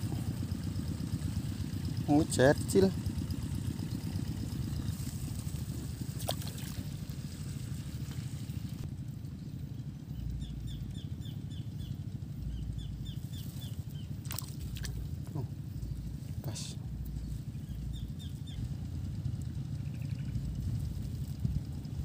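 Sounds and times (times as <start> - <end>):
small engine droning: 0.0 - 22.0
fish splashing: 6.1 - 7.0, 14.2 - 15.2
bird chirping: 9.4 - 14.2, 17.1 - 18.7.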